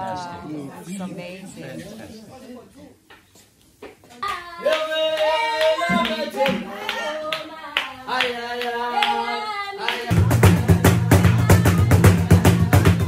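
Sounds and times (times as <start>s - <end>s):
hand clapping: 3.2s - 9.2s
voices singing together: 4.2s - 13.0s
heavy low beat: 10.1s - 13.0s.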